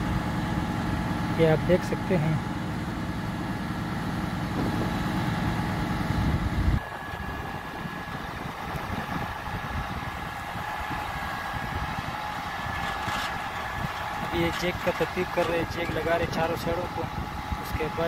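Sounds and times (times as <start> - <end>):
diesel engine idling: 0.0 - 18.0
heavy low rumble: 4.3 - 18.0.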